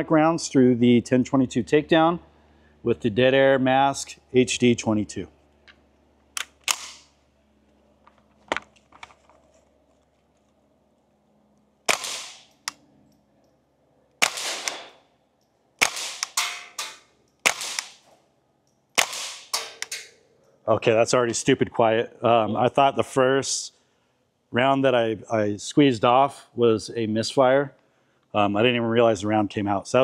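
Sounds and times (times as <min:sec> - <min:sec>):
suppressed rifle shots: 0:06.4 - 0:07.1, 0:11.9 - 0:12.7, 0:14.2 - 0:15.0, 0:15.8 - 0:18.1, 0:19.0 - 0:20.1.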